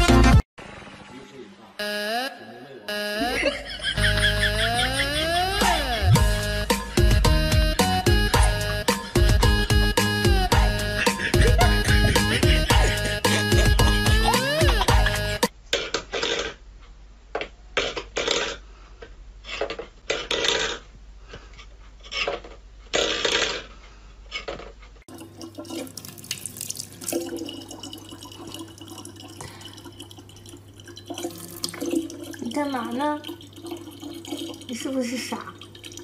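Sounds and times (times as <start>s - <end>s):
tap water running into bottle: 25.1s - 36.0s.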